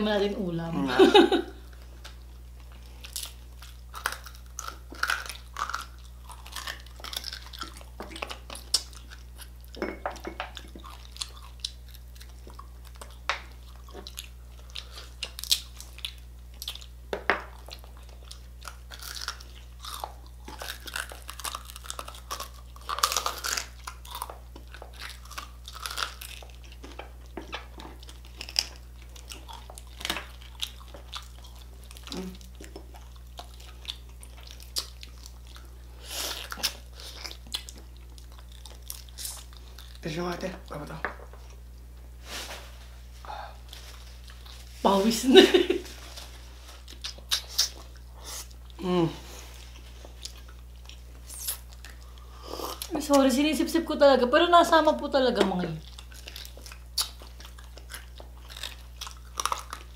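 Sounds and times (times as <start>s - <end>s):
steady low hum: 0.0s - 59.9s
people chewing crunchy food: 1.5s - 53.4s, 55.4s - 59.9s.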